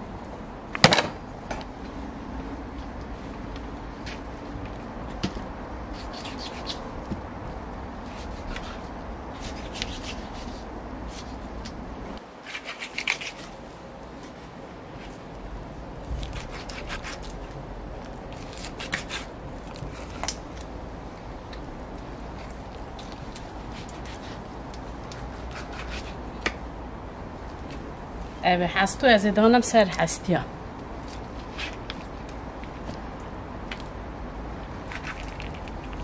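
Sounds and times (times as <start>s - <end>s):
low background noise: 0.0s - 36.0s
rubbing and scraping of meat: 5.9s - 7.2s, 16.1s - 20.8s, 22.0s - 26.4s, 30.9s - 33.0s, 34.7s - 36.0s.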